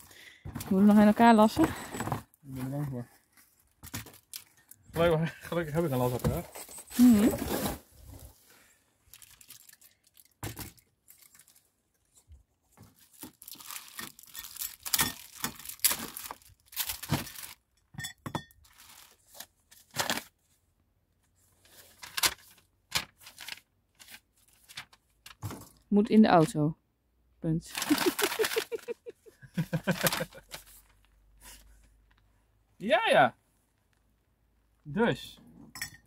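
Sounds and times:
plastic packaging crinkling and tearing: 3.8 - 4.6, 9.0 - 12.2, 12.9 - 17.6, 18.6 - 20.4, 22.0 - 25.5, 27.7 - 29.0, 29.8 - 31.1
paper sheet rustling: 18.7 - 20.3, 21.6 - 25.7, 27.7 - 31.8.

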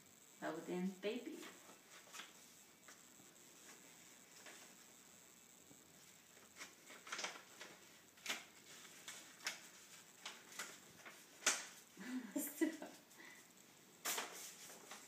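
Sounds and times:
paper crinkling and rustling: 1.4 - 3.0, 3.6 - 4.8, 6.0 - 11.9, 14.0 - 15.0.

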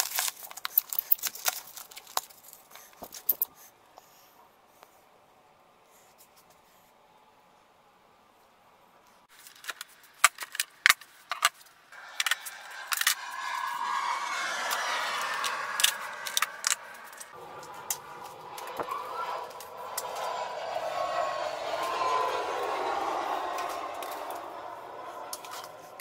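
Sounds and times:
steady rushing noise: 12.0 - 26.0.

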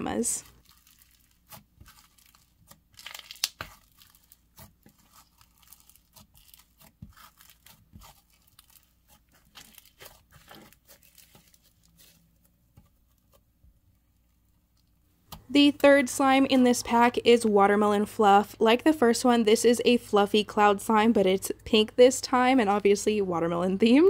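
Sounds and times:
slime crunching and crackling: 0.4 - 13.4.

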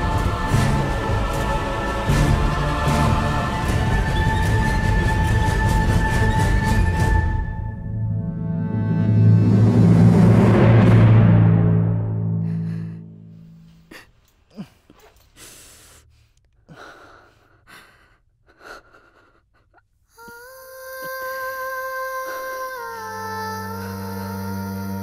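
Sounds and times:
background music held chord: 0.0 - 13.8, 21.6 - 25.0
person breathing and gasping: 12.4 - 21.4
clothing rustles and belt clicks: 14.1 - 15.5.

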